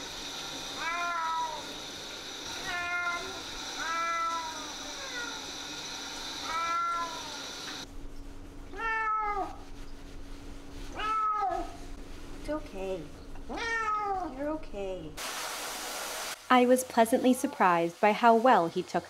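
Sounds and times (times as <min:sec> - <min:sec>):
cat meowing: 0:06.4 - 0:07.4, 0:08.7 - 0:09.6, 0:10.9 - 0:11.8, 0:13.5 - 0:14.4.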